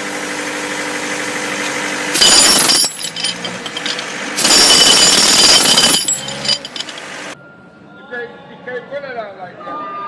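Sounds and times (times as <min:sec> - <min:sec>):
engine running steadily: 0:00.0 - 0:07.4
jackhammer breaking concrete: 0:02.1 - 0:07.1.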